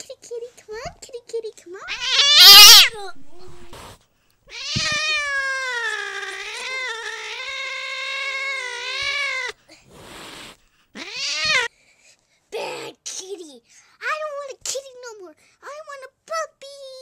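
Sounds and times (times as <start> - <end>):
girl wailing and crying: 1.9 - 3.7, 4.6 - 9.5.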